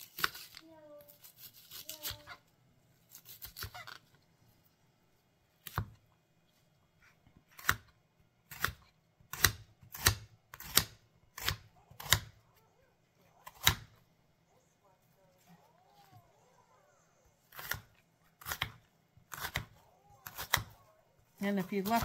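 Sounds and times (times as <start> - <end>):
knife chopping on cutting board: 5.6 - 6.0, 8.5 - 12.4, 17.5 - 20.8.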